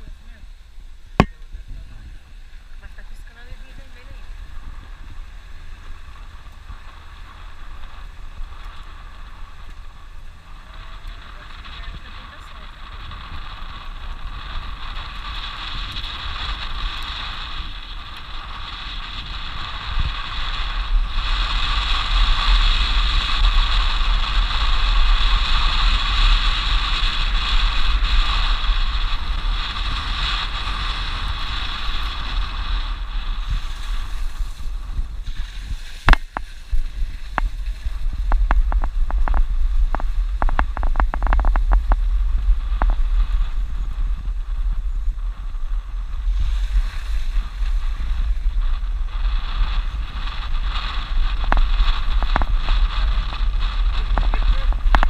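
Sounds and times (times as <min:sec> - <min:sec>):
car engine and tyre noise: 0:00.0 - 0:55.0
wind buffeting microphone: 0:00.0 - 0:55.0
sharp knock: 0:01.2 - 0:01.4.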